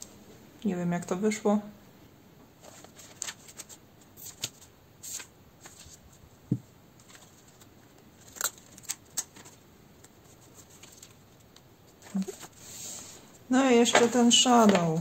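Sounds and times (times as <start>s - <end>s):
paper page turning and rustling: 2.6s - 6.2s, 7.0s - 12.7s, 13.8s - 15.0s.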